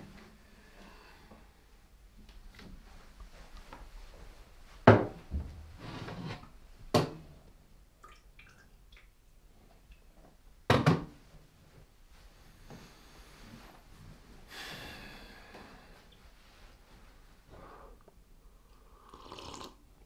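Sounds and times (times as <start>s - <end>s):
quiet rustling: 1.4s - 6.8s, 11.3s - 14.5s, 15.6s - 18.2s
liquid splashing or pouring: 8.0s - 9.1s.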